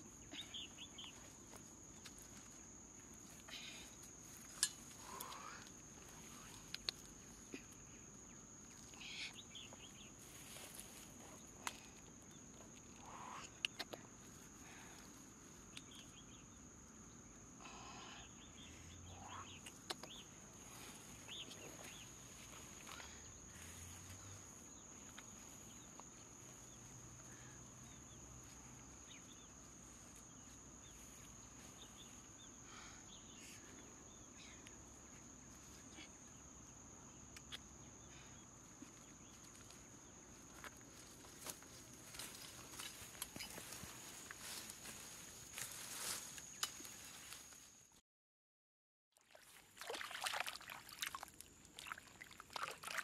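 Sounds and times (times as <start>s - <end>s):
high insect drone: 0.0s - 47.9s
faint bird chirps: 0.1s - 1.4s, 17.6s - 23.2s
light rustles and ticks: 38.8s - 47.7s.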